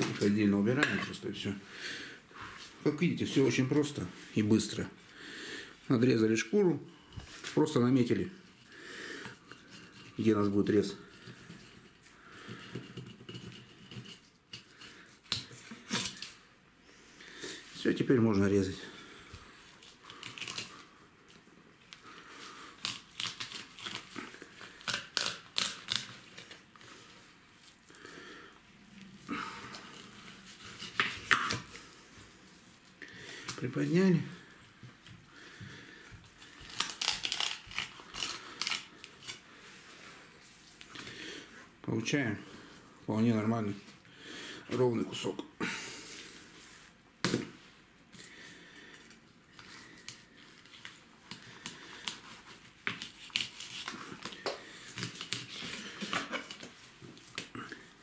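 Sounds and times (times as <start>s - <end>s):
knife scraping fish skin: 12.5s - 16.4s, 22.8s - 26.6s, 30.0s - 31.7s, 36.6s - 39.4s, 51.3s - 56.7s.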